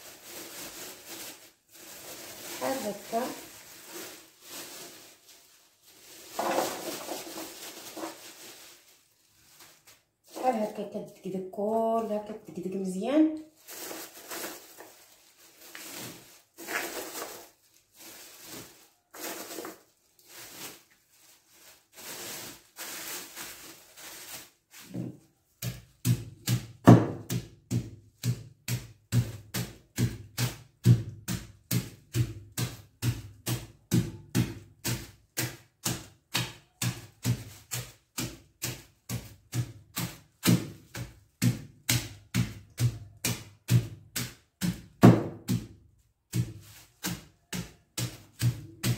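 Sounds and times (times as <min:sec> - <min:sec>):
plastic bag rustling: 0:00.0 - 0:11.2, 0:11.8 - 0:48.9
wooden pestle pounding: 0:25.6 - 0:37.3, 0:38.2 - 0:48.9.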